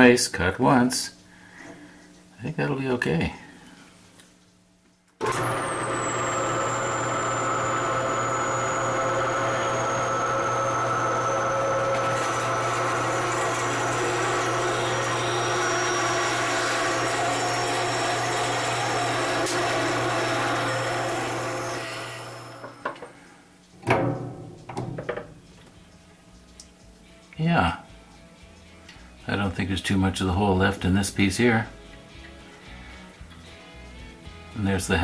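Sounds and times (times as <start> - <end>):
bandsaw cutting metal: 5.2 - 22.8
bandsaw winding down: 5.2 - 22.9.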